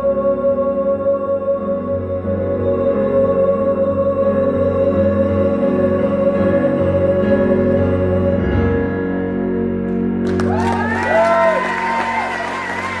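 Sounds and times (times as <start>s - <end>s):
audience applause: 10.2s - 13.0s
whistles and cheers: 10.3s - 13.0s.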